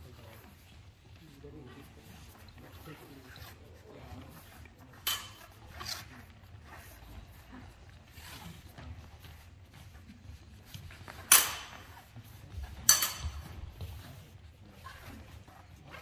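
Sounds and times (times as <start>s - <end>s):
steel blades clashing: 5.0s - 5.5s, 11.3s - 11.9s, 12.9s - 13.4s
soft footfalls on a mat: 6.3s - 16.0s.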